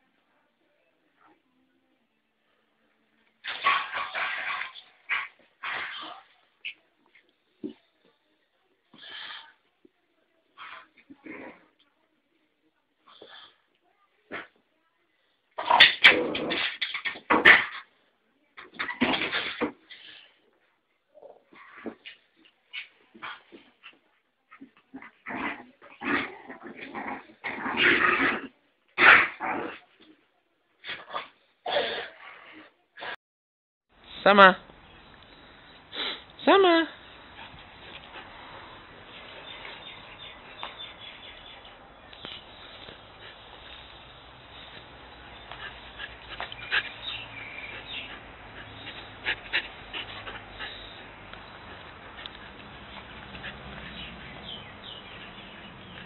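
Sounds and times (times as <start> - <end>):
puppies growling and yipping: 44.6 - 56.0.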